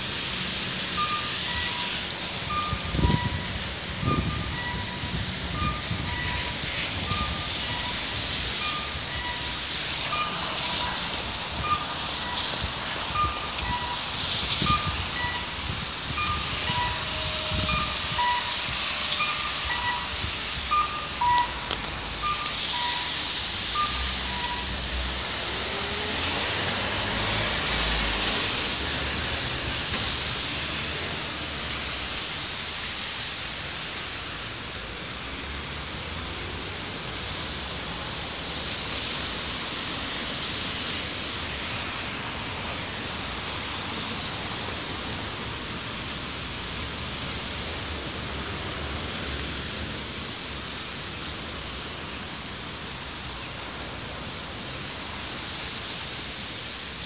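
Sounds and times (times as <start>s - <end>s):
car tyres on wet street: 0.0s - 57.0s
rain hiss: 0.0s - 57.0s
short electronic beeps: 1.0s - 8.0s, 8.6s - 15.5s, 16.2s - 17.1s, 17.7s - 24.8s
vehicle rumbling past: 23.8s - 32.1s.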